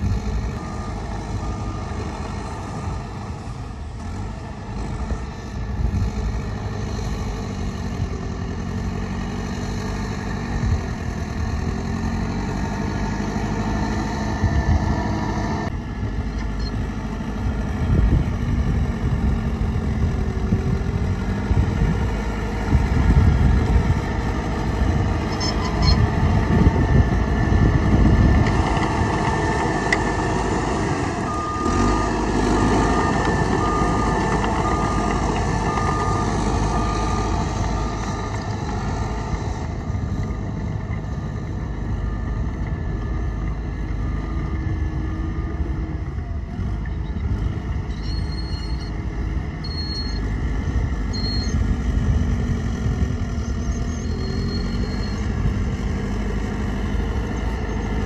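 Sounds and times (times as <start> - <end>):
heavy diesel machinery engines: 0.0 - 58.0
reversing alarm beeping: 25.3 - 26.1, 29.8 - 38.6, 47.9 - 49.0, 49.6 - 50.3, 51.1 - 51.6, 53.6 - 55.4.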